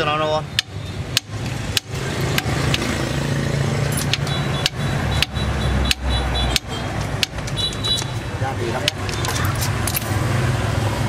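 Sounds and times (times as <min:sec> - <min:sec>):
tube cutter metallic clicks: 0:03.9 - 0:08.1.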